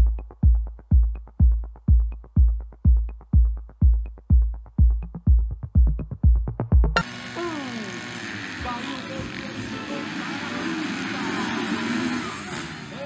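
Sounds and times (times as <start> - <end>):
booming electronic kick drum: 0.0 - 7.1.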